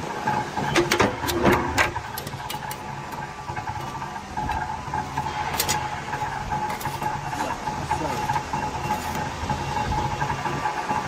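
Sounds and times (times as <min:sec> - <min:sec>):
punching press humming: 0:00.0 - 0:11.0.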